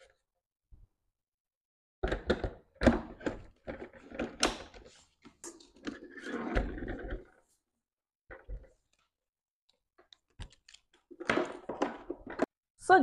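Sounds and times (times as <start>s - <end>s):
plastic blender pitcher knocks and clicks: 2.0s - 4.7s, 11.1s - 12.5s.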